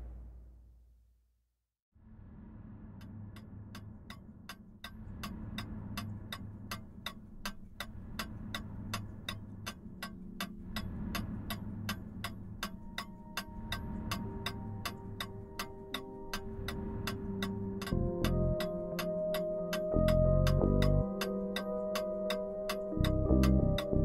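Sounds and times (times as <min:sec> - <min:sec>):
low droning music: 0:02.2 - 0:24.0
clock-like ticking: 0:03.0 - 0:24.0
held musical tones: 0:12.8 - 0:24.0.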